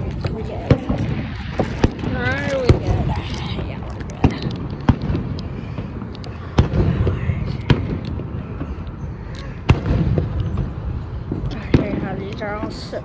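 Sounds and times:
fireworks pops: 0.0 - 8.3
fireworks bangs: 0.0 - 13.0.

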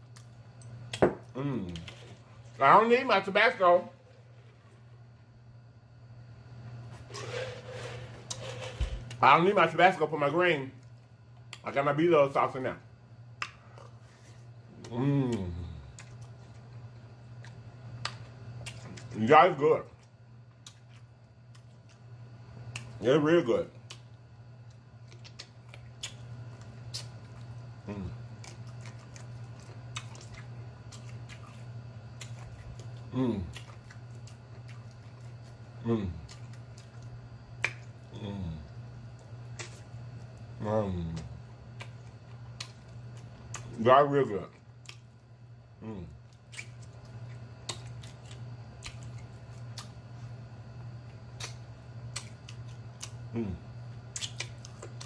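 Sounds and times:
steady low hum: 0.0 - 55.0
eating clicks and smacks: 20.0 - 23.0, 23.8 - 27.6, 28.2 - 35.6, 36.2 - 38.1, 39.2 - 40.2, 41.1 - 43.8, 44.8 - 45.1, 46.2 - 50.0, 51.0 - 53.3, 54.1 - 55.0
wet mouth smacks while eating: 25.1 - 26.3, 26.9 - 27.4, 36.2 - 38.0, 39.5 - 39.9, 44.8 - 45.1, 46.4 - 50.0, 51.3 - 53.2, 54.1 - 55.0.

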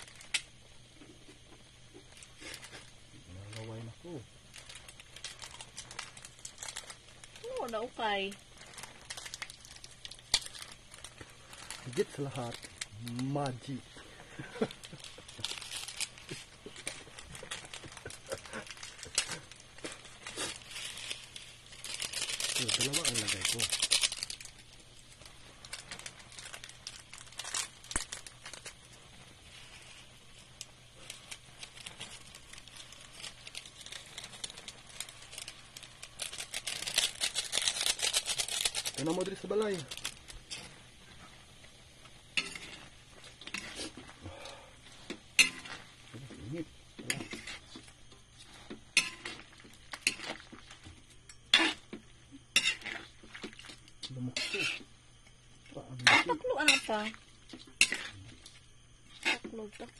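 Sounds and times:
plastic sachet crinkling and tearing: 0.0 - 0.5, 2.0 - 44.5, 49.4 - 50.8
light sizzle from pan: 0.0 - 59.9
spatula scraping a wok: 42.3 - 44.2, 44.8 - 46.1, 47.0 - 50.8, 51.5 - 53.6, 54.3 - 54.9, 56.0 - 58.4, 59.1 - 59.6.

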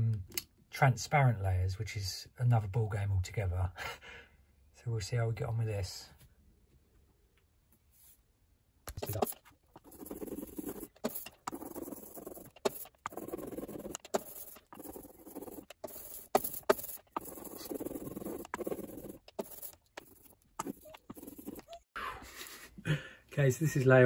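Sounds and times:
ink roller rolling through ink: 9.0 - 21.9.

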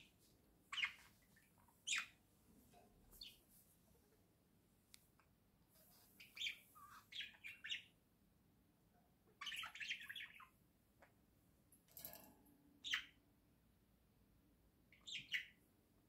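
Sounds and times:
budgerigar chirping: 1.8 - 2.2, 6.2 - 7.9, 9.4 - 10.5, 12.8 - 13.2, 14.9 - 15.6.

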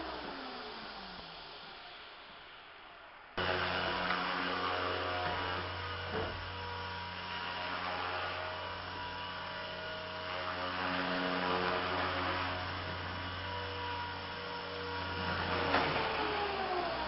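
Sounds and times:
rc helicopter rotor whining: 0.0 - 17.0.

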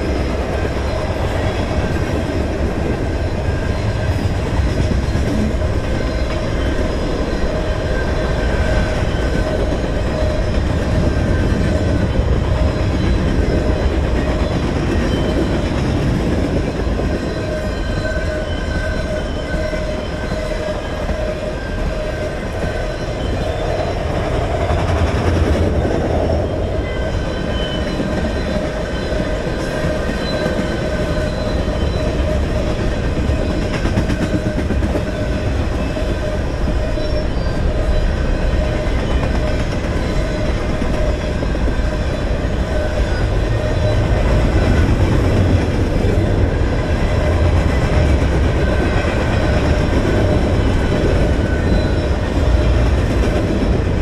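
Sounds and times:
train wheels rumbling and clattering: 0.0 - 54.0.

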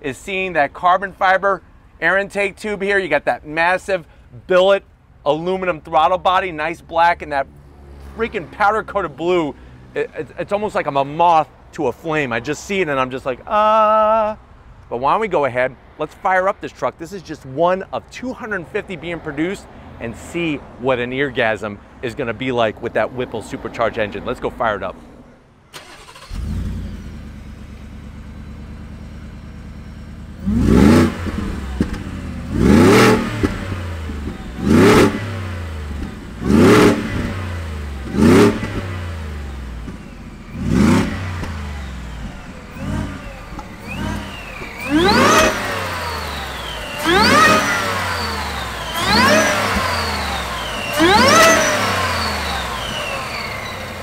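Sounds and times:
engine starting and revving: 25.7 - 28.2, 30.4 - 54.0
supercharger whine: 25.9 - 54.0.

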